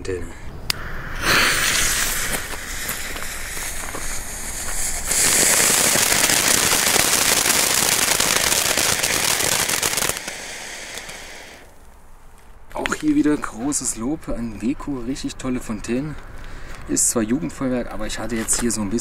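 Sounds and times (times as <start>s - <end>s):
firework fountain hissing and crackling: 0.8s - 11.8s.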